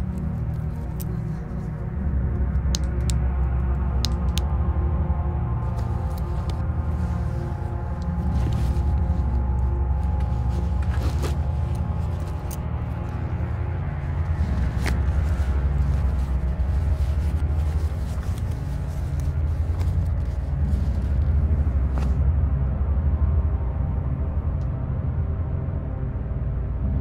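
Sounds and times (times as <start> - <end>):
low rumbling film score drone: 0.0 - 27.0
bag snap fasteners clicking: 2.6 - 3.2, 4.0 - 4.5.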